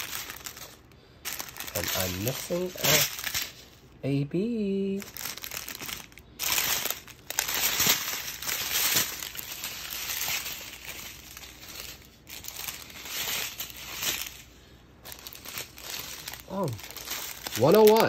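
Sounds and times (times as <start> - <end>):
plastic bags crinkling: 0.0 - 3.9, 4.5 - 18.0.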